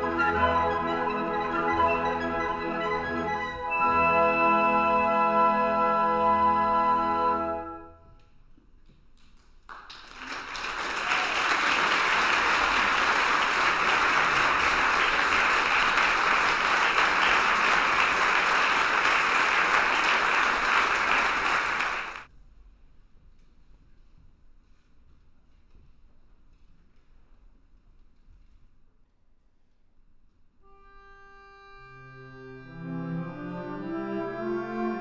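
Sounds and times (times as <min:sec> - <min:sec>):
flute orchestra held chord: 0:00.0 - 0:07.9
audience applauding: 0:09.7 - 0:22.3.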